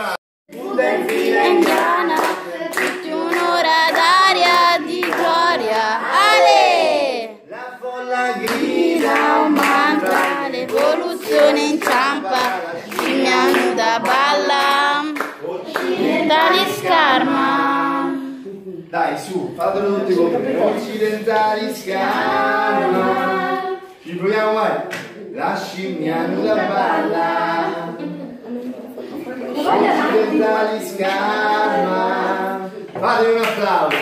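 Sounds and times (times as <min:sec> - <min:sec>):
man singing a pop tune: 0:07.5 - 0:18.6.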